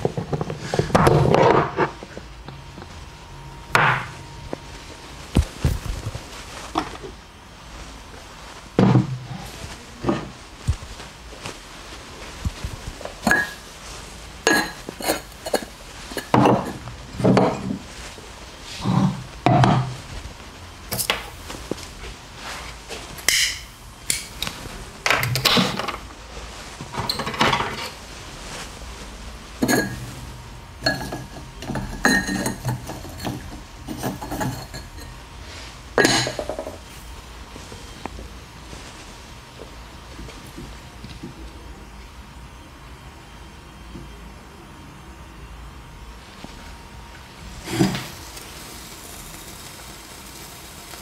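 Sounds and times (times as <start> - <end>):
glass jars clinking: 13.2 - 13.6, 14.4 - 17.8, 29.6 - 30.1, 30.8 - 35.1, 36.0 - 36.6.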